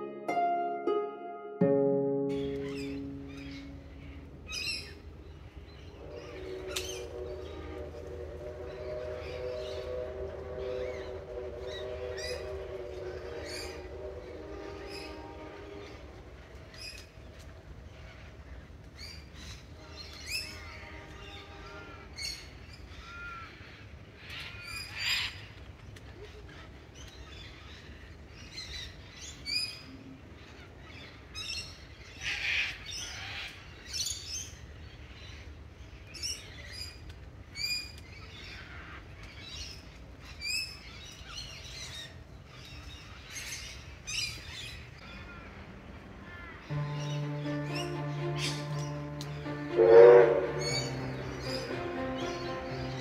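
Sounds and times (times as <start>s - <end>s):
birds chirping and whistling: 5.7s - 15.3s.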